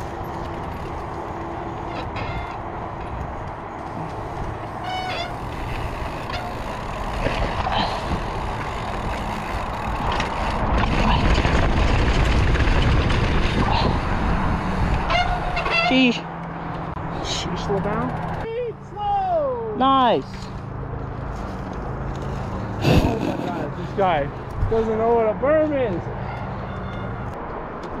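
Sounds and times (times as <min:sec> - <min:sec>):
bike tyres rolling on dirt: 0:00.0 - 0:15.8
wind rushing over microphone: 0:09.6 - 0:15.7.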